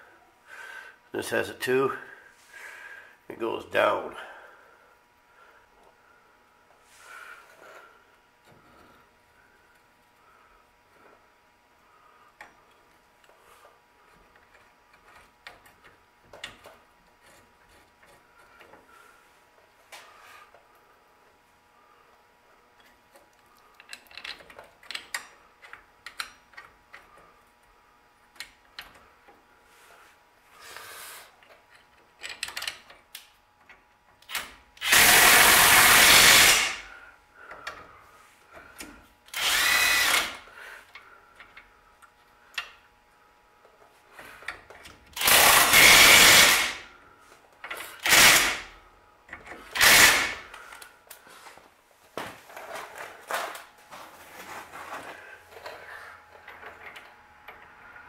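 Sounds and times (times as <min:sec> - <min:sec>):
tools clicking and tapping: 0:22.8 - 0:27.1, 0:31.4 - 0:34.4
power drill spinning bolts: 0:34.3 - 0:36.8, 0:39.3 - 0:40.4, 0:45.2 - 0:46.8, 0:47.7 - 0:48.6, 0:49.7 - 0:50.4.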